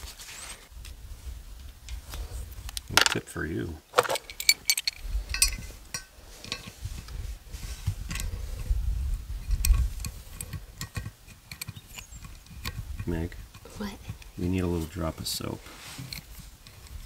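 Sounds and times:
metal parts clicking and clinking: 0:03.0 - 0:03.2, 0:03.9 - 0:06.7, 0:09.6 - 0:12.7.

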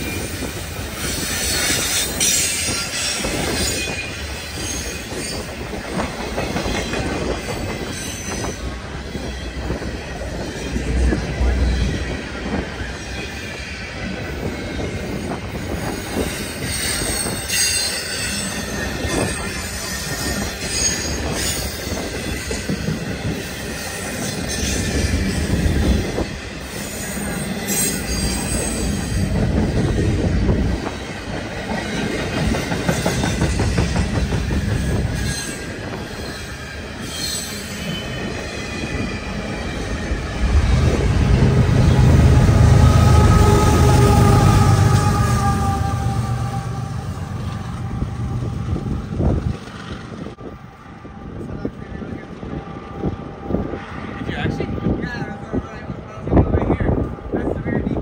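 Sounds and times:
high wheel squeal: 0:00.0 - 0:48.1
train wheels rumbling on rail: 0:00.0 - 0:58.0.

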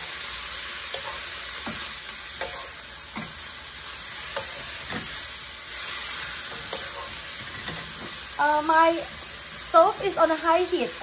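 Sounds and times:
sprouts sizzling in hot oil: 0:00.0 - 0:11.0
wooden spatula scraping a wok: 0:00.8 - 0:08.3.

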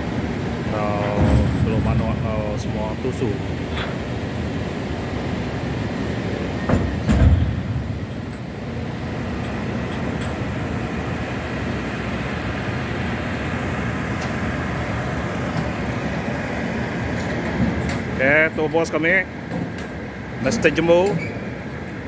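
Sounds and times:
deck machinery rumbling: 0:00.0 - 0:22.0
heavy metallic knocks: 0:01.0 - 0:03.0, 0:06.7 - 0:08.5.

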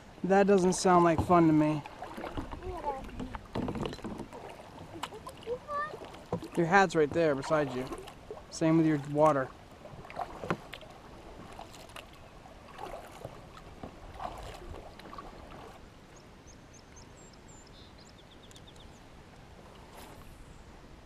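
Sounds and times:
kayak paddle splashing: 0:00.1 - 0:16.0, 0:19.5 - 0:20.5
faint high bird chirps: 0:16.2 - 0:19.0.

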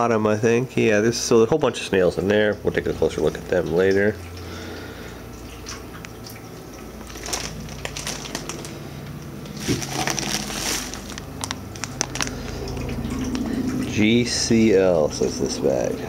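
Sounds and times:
plastic bag crinkling: 0:07.0 - 0:12.9.

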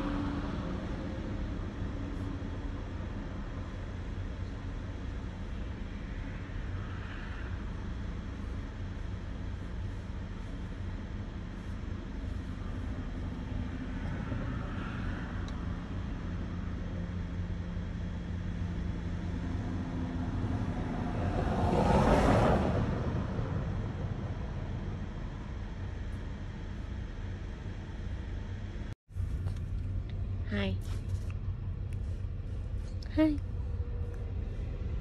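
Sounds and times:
vehicle passing: 0:19.2 - 0:25.1.

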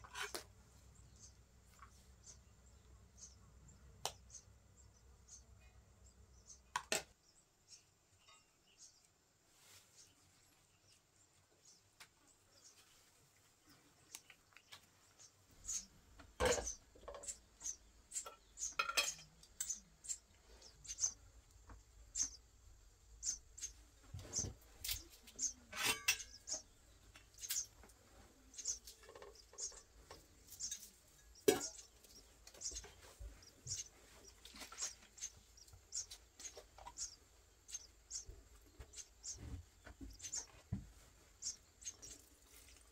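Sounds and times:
metallic clinks of kitchenware: 0:25.7 - 0:26.4.

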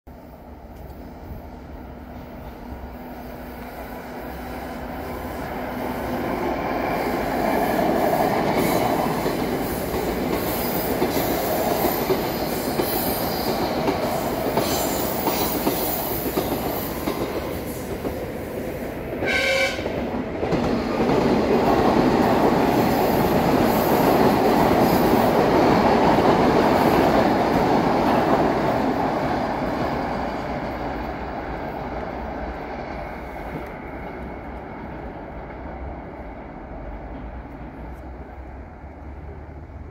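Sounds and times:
train rumble and wheel clatter: 0:00.1 - 0:39.9
train horn blast: 0:19.2 - 0:20.0.

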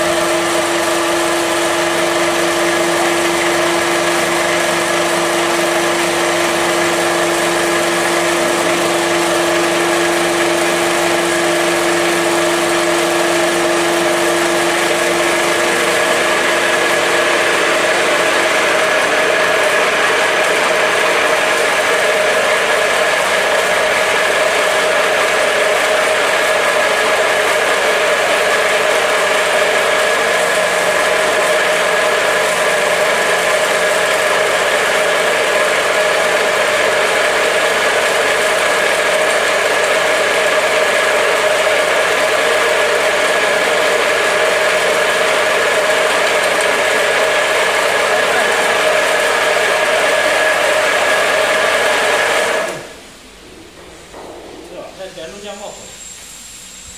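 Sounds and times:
pellet mill motor hum and whine: 0:00.0 - 0:56.9
low hum: 0:52.9 - 0:56.9.

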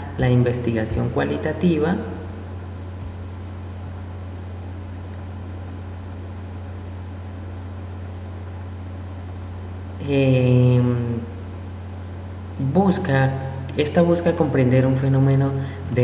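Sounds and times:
person speaking: 0:00.0 - 0:02.5, 0:12.6 - 0:16.0
low hum with hiss: 0:00.0 - 0:16.0.

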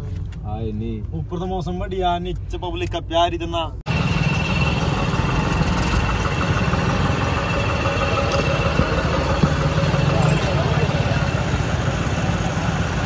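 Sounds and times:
high-pitched whine: 0:03.9 - 0:13.0
tractor engine idling: 0:03.9 - 0:13.0.

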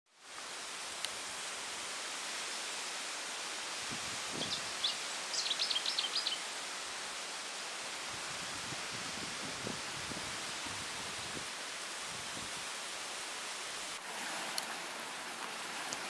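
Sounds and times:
outdoor ambient hiss: 0:00.1 - 0:16.0
small bird chirping: 0:04.4 - 0:06.4.

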